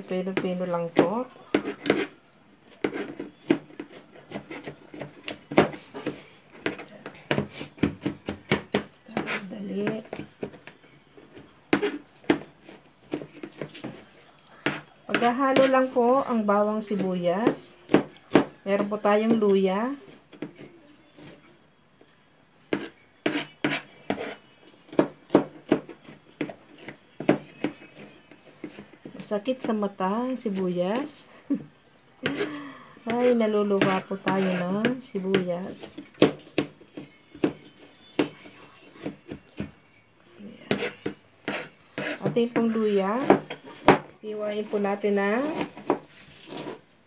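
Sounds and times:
knife chopping on plastic board: 0.3s - 2.2s, 2.8s - 10.8s, 11.7s - 12.5s, 14.6s - 15.9s, 16.8s - 19.4s, 22.7s - 29.2s, 33.1s - 37.6s, 40.7s - 44.1s, 45.4s - 46.8s
knife chopping on cutting board: 1.0s - 2.1s, 33.1s - 37.6s, 40.7s - 44.1s, 45.4s - 46.8s.

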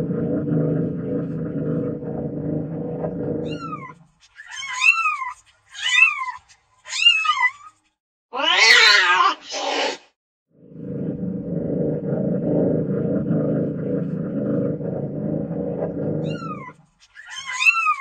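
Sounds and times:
low steady rumble: 0.0s - 4.0s, 10.6s - 16.8s
cat meowing: 8.3s - 9.9s, 16.2s - 18.0s.

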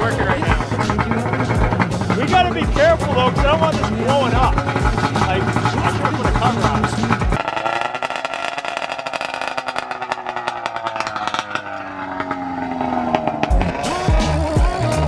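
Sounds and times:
music with heavy beat: 0.0s - 7.4s, 13.5s - 15.0s
snowmobile engine crackling: 0.0s - 15.0s.

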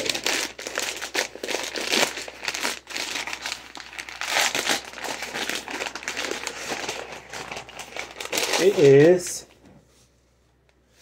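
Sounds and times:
padded paper mailer tearing: 0.0s - 9.3s.

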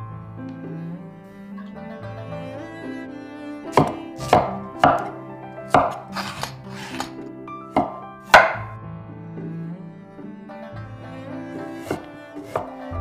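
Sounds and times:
soft background music: 0.0s - 13.0s
cleaver chopping on wooden board: 3.7s - 7.2s, 7.8s - 8.7s, 11.8s - 12.8s.

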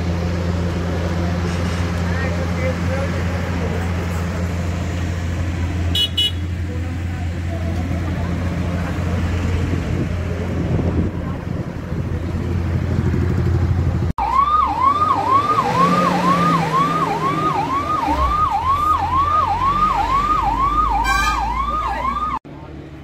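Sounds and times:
low engine rumble: 0.0s - 15.4s
emergency siren sweeping: 14.1s - 22.4s.

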